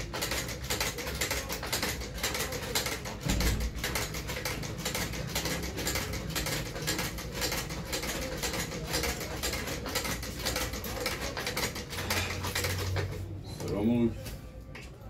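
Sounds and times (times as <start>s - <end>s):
sewing machine clatter: 0.0s - 13.9s.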